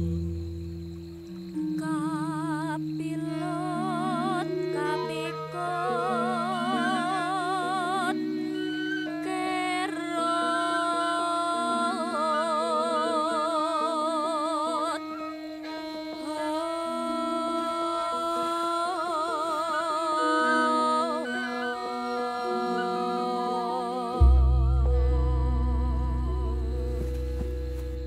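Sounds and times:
slow wordless melody with vibrato: 0.0 - 28.0
steady low drone: 24.2 - 28.0.

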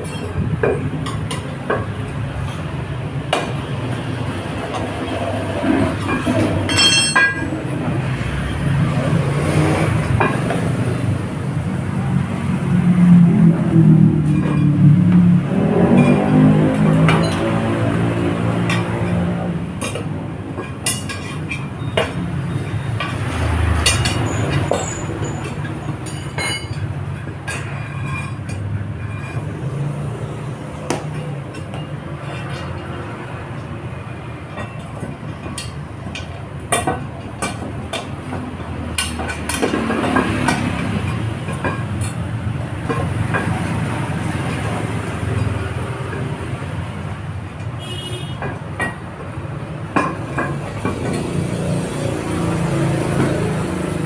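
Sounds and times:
tyres and tools clicking: 34.4 - 47.8.

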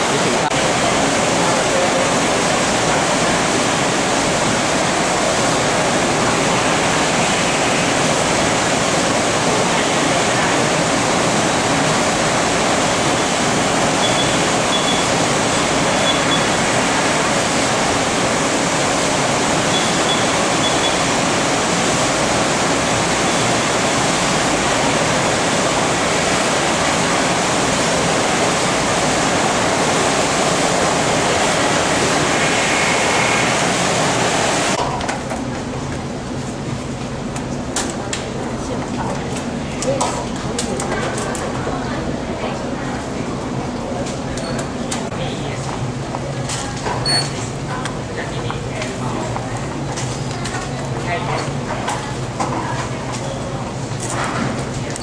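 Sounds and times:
dense factory hiss: 0.0 - 37.6
short high beeps: 14.0 - 15.1, 19.7 - 21.1.

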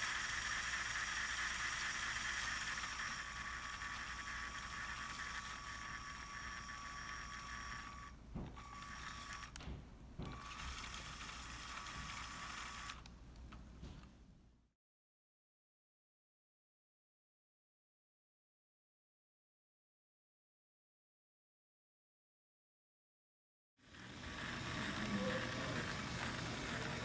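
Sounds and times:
toy motor whirring with whine: 0.0 - 9.6, 10.3 - 13.1, 23.8 - 27.0.

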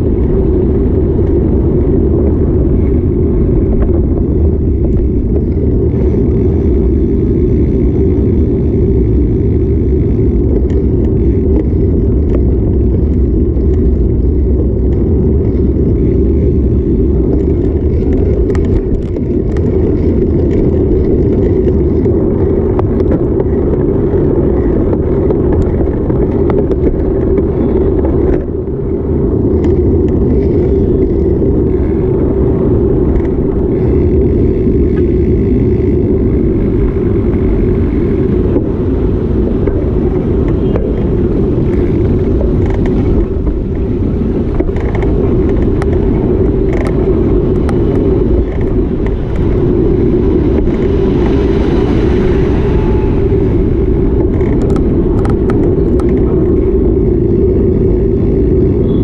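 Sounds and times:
city street traffic: 0.0 - 59.0
wind buffeting microphone: 0.0 - 59.0.

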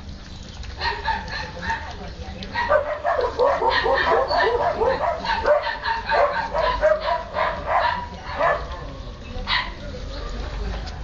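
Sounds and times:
puppies yipping and whining: 2.6 - 8.9.

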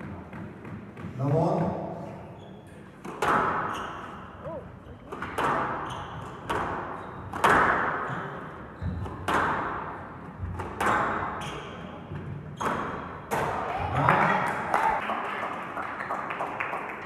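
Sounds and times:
squash ball hits echoing: 0.0 - 1.9, 3.0 - 3.8, 5.1 - 14.1.

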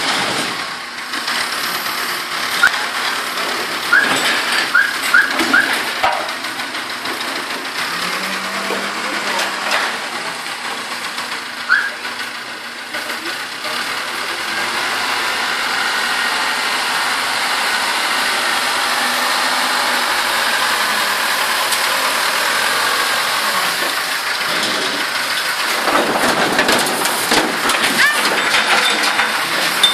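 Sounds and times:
diesel engine under load: 0.0 - 29.9.

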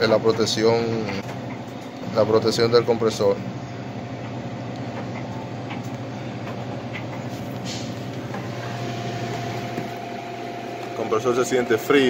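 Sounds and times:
refrigerator fan hum: 0.0 - 12.0.

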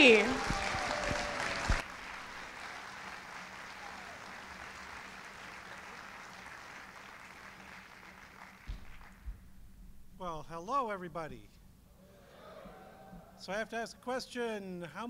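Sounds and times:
audience applauding: 0.0 - 9.4
short thump: 8.7 - 10.2.

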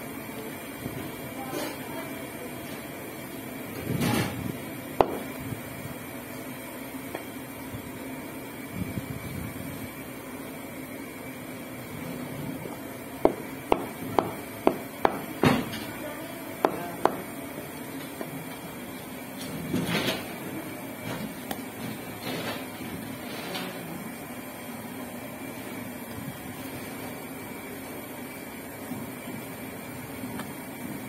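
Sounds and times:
cleaver chopping meat on wood: 13.2 - 15.6.

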